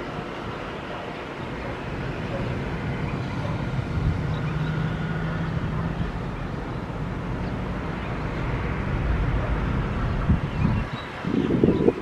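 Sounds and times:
jet engines low rumble: 0:00.0 - 0:12.0.

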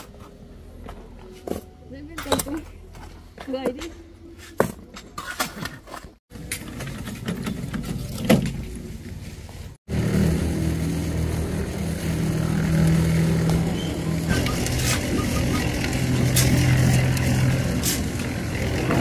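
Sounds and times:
engine running steadily: 0:09.4 - 0:19.0.

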